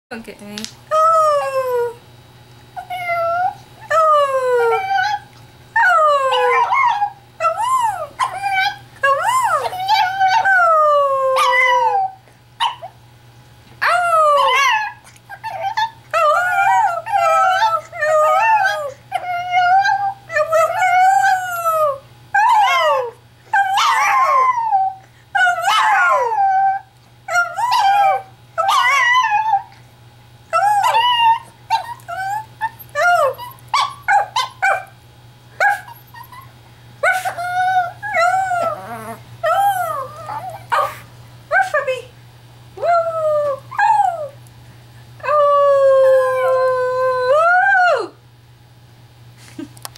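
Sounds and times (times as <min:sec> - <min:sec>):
small dog howling and yipping: 0:02.8 - 0:13.0, 0:13.8 - 0:29.7, 0:30.5 - 0:34.9, 0:35.6 - 0:41.0, 0:42.8 - 0:44.4.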